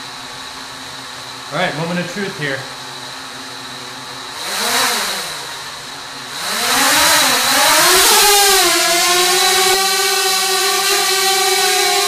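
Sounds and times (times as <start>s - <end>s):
drone propellers whining: 4.2s - 12.0s.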